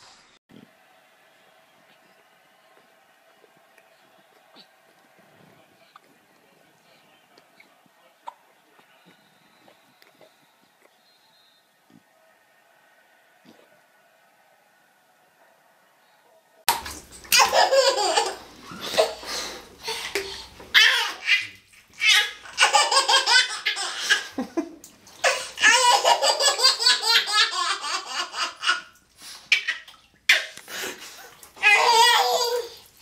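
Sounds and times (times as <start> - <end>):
baby laughing: 16.9 - 30.6, 31.3 - 32.9.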